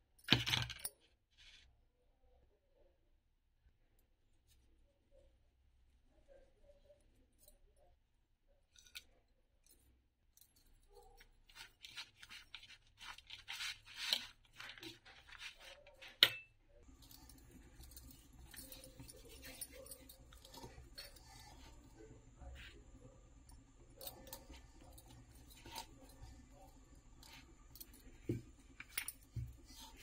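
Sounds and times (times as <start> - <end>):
faint handling sounds: 3.7 - 30.0
spoon scraping plastic bowl: 11.5 - 16.2.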